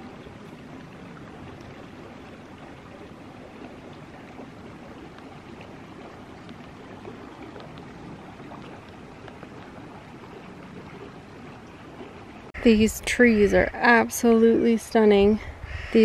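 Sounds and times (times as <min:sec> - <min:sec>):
faint small splashes: 0:00.0 - 0:12.6
creek flowing over rocks: 0:00.0 - 0:14.8.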